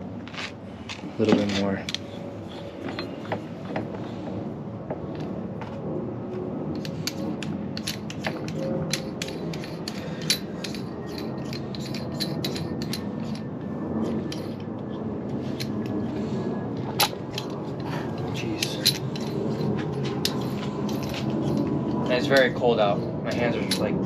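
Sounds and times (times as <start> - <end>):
metal tools clinking on metal: 6.8 - 13.5, 17.0 - 24.0.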